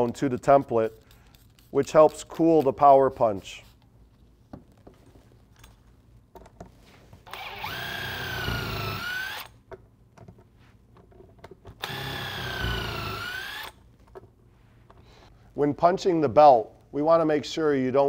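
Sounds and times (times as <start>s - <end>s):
impact wrench motor whine: 7.3s - 9.6s, 11.8s - 13.8s.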